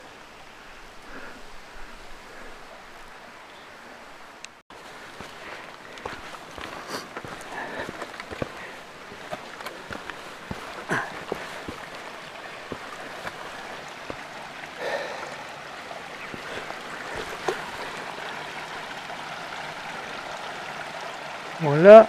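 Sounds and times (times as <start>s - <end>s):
mountain stream running: 0.0s - 22.0s
footsteps on stony ground: 4.7s - 15.3s, 16.0s - 19.0s.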